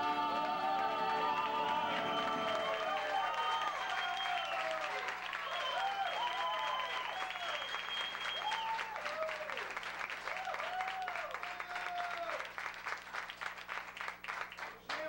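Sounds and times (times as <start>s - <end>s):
audience applauding and cheering: 0.0s - 15.0s
long high whistle: 1.7s - 9.0s.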